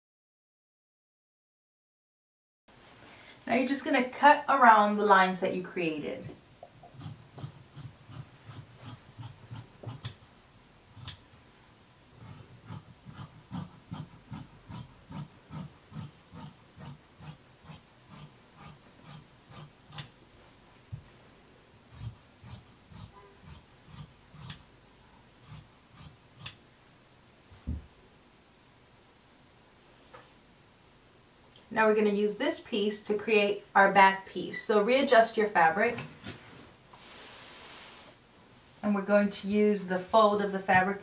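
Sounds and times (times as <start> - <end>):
shears snipping fabric: 6.8 - 10.3, 10.9 - 11.4, 12.2 - 20.2, 21.9 - 24.7, 25.4 - 26.6.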